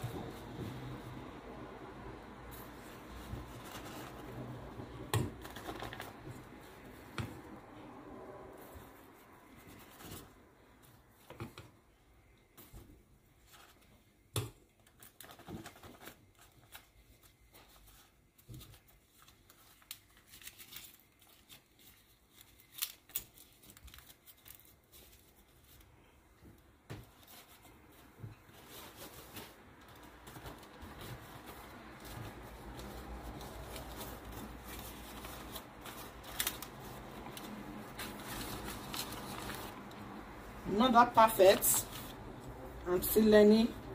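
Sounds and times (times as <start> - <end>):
leaves rustling and crinkling: 15.9 - 25.9, 27.1 - 43.7.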